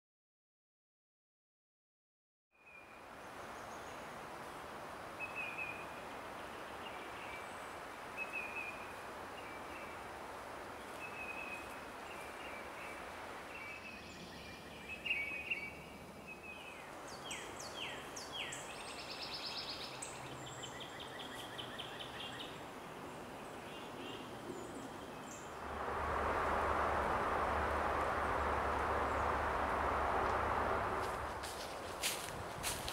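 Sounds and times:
songbirds calling: 2.7s - 32.9s
loud rushing noise: 25.5s - 32.8s
steady hiss: 25.6s - 32.9s.

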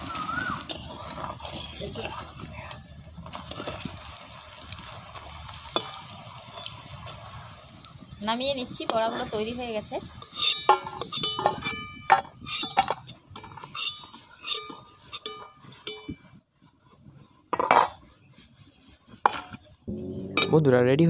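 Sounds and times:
metal spatula clinking on pan: 10.4s - 12.8s, 13.8s - 16.1s.

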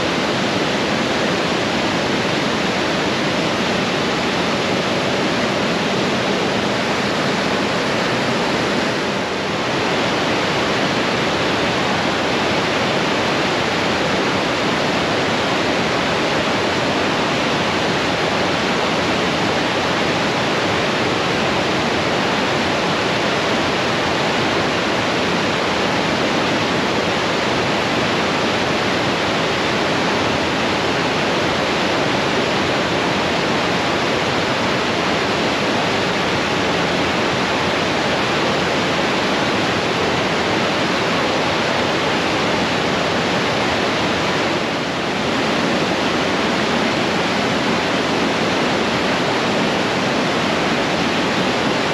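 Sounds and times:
river rapids rushing: 0.0s - 51.9s.

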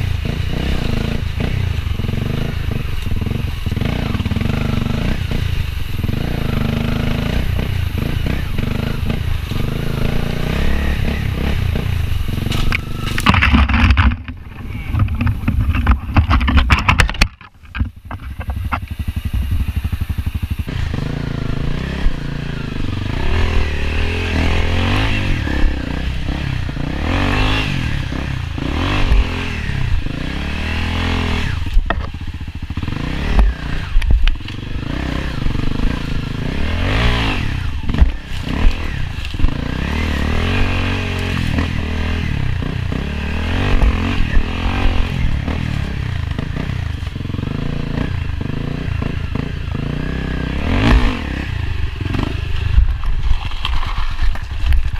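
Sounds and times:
dirt bike engine revving: 0.0s - 54.7s
bike knocking and scraping over rocks: 11.0s - 21.2s, 31.0s - 49.9s, 50.7s - 54.9s.

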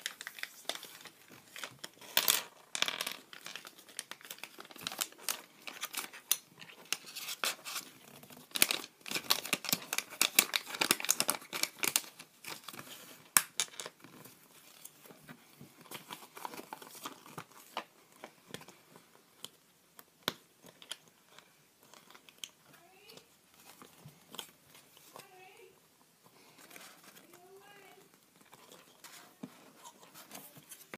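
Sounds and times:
plastic wrapper crinkling: 0.0s - 2.2s, 2.8s - 15.1s, 15.8s - 19.6s, 20.3s - 22.6s.

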